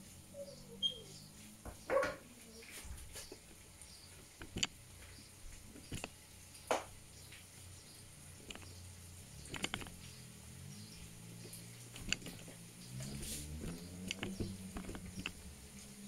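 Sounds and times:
short clicks and knocks: 4.2 - 4.8, 5.7 - 6.9, 9.5 - 10.0, 11.9 - 12.5, 13.6 - 15.4.

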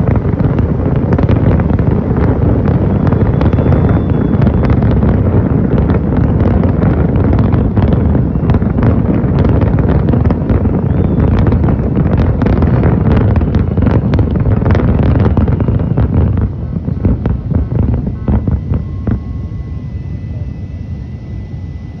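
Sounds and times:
fireworks bangs and crackles: 0.0 - 22.0
heavy low rumble: 0.0 - 22.0.

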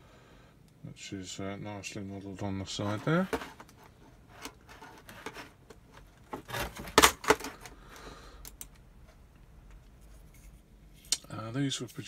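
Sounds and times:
packaging rustling: 2.8 - 7.8.

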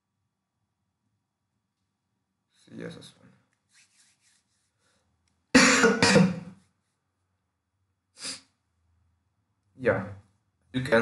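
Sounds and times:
harsh coughing: 5.6 - 6.5
man clearing his throat: 5.6 - 6.5.

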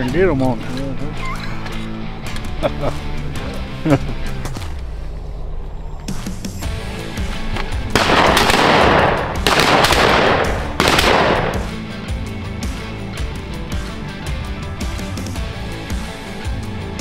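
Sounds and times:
guitar music: 0.0 - 4.7, 6.6 - 17.0
shotgun blasts with echo: 7.9 - 11.8.

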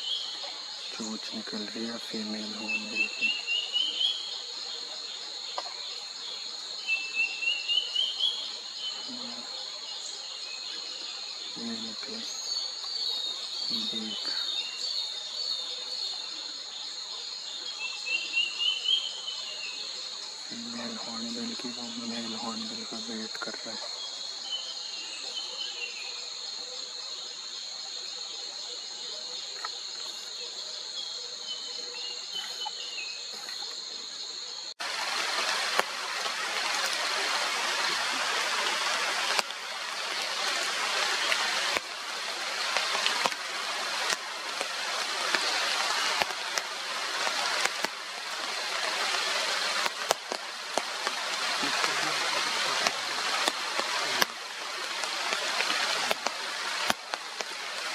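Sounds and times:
heavy rain on foliage: 0.0 - 27.8, 34.6 - 57.9
high-pitched insect chorus: 0.0 - 57.9
raindrops ticking: 34.8 - 57.9.

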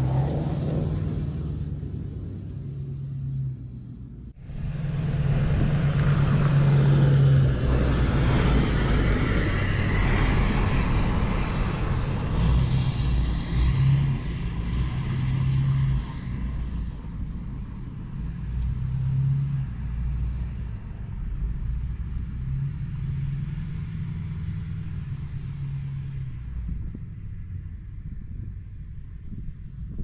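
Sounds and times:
tyres on snow: 0.0 - 15.0
truck engine humming: 0.0 - 15.6.

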